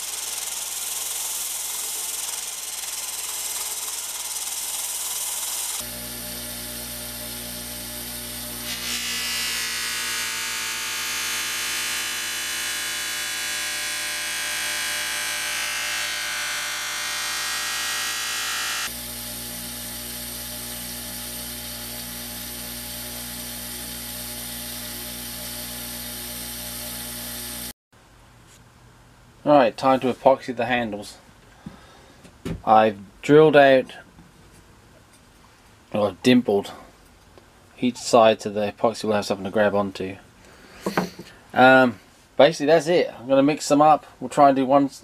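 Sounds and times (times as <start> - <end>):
bench grinder motor hum: 0.0 - 27.7.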